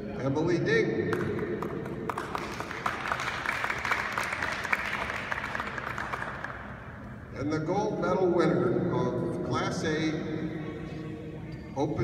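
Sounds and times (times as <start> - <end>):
crowd applauding: 1.1 - 6.8.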